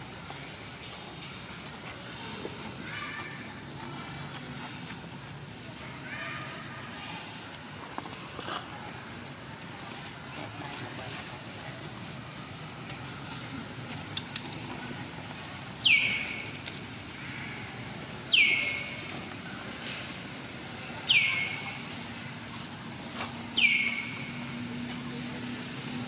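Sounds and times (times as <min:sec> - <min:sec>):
bird calling: 0:15.8 - 0:16.6, 0:18.3 - 0:19.4, 0:20.8 - 0:22.0, 0:23.5 - 0:24.4.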